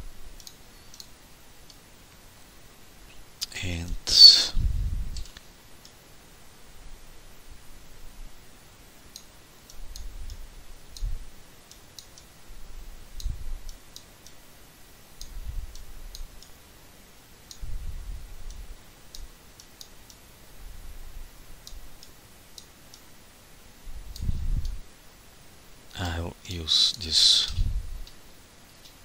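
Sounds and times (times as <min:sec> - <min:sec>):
computer mouse buttons clicking: 0:00.4 - 0:01.1.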